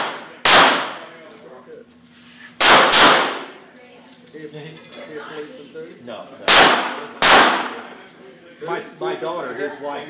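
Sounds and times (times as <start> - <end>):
pistol shots echoing: 0.0 - 1.1, 2.6 - 3.5, 6.5 - 7.8.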